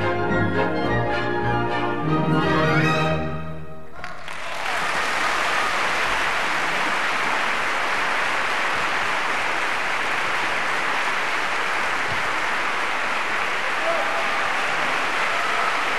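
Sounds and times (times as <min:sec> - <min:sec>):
audience applauding: 0:03.9 - 0:15.9.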